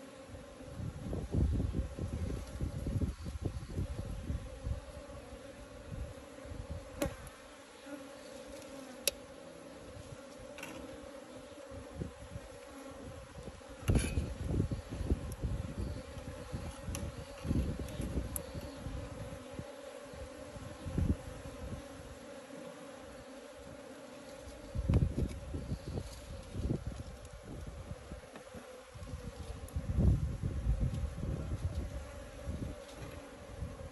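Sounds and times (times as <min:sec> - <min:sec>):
honeybees buzzing: 0:00.0 - 0:33.9
wind on microphone: 0:00.3 - 0:07.3, 0:11.7 - 0:22.1, 0:24.6 - 0:28.2, 0:28.9 - 0:33.9.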